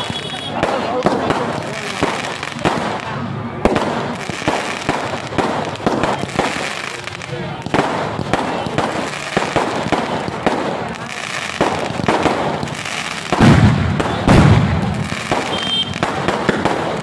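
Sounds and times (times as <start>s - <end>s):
heavy firework booms: 0.0s - 6.8s, 7.5s - 17.0s
fireworks bangs and crackles: 0.0s - 17.0s.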